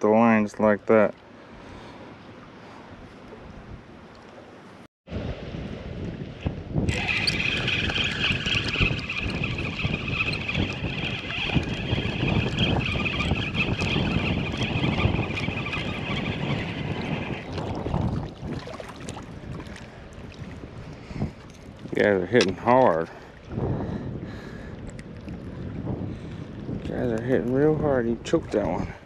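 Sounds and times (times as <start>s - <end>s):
wind buffeting microphone: 5.1s - 29.0s
high-pitched whir: 6.9s - 17.4s.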